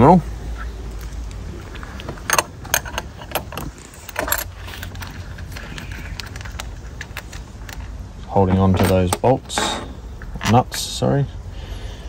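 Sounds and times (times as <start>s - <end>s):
metal spanner clinking on nut: 2.3s - 5.1s.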